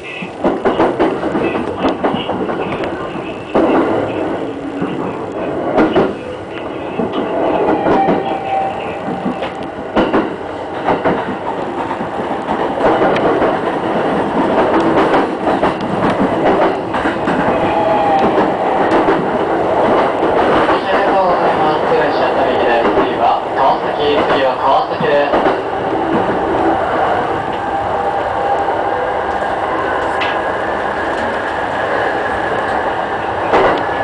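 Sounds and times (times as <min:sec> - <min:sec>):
wheels clacking over rail joints: 0:00.0 - 0:26.4
electric train running noise: 0:00.0 - 0:34.0.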